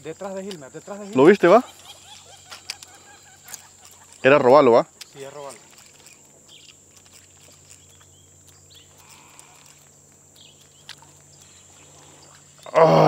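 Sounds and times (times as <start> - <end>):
steady low hum: 0.0 - 13.0
faint animal calls: 1.0 - 4.4, 8.8 - 10.0.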